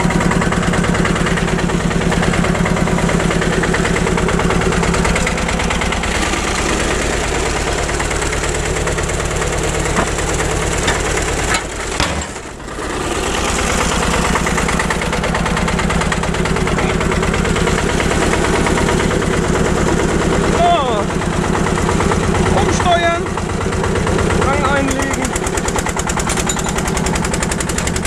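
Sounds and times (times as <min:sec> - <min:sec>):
tractor engine chugging: 0:00.0 - 0:28.0.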